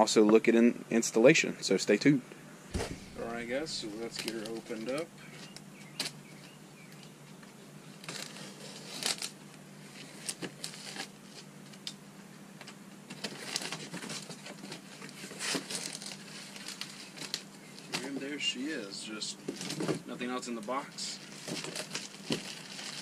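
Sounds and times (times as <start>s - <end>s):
packing material crinkling: 2.7s - 6.2s, 8.0s - 11.9s, 13.2s - 18.1s, 20.7s - 23.0s.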